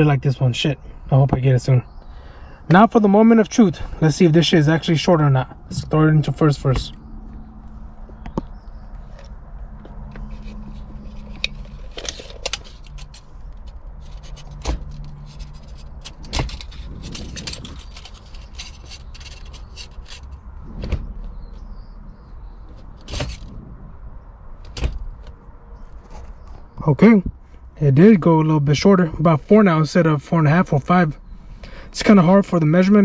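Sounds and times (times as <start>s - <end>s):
low hum: 2.1s - 26.2s
gear lever clicks and knocks: 11.2s - 21.0s.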